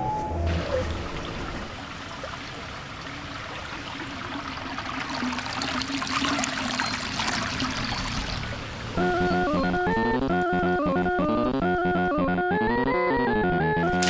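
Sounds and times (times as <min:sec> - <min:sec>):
fountain water splashing: 0:00.5 - 0:09.0.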